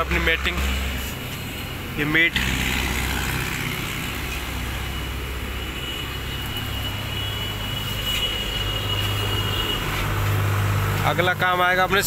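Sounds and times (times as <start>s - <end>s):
vehicle engine hum: 0.0s - 12.0s.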